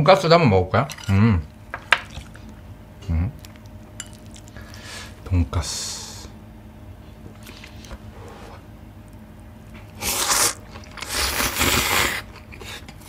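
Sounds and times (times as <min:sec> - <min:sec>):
quiet chewing: 0:01.9 - 0:05.2, 0:09.0 - 0:13.0
slurping noodles: 0:10.0 - 0:12.9.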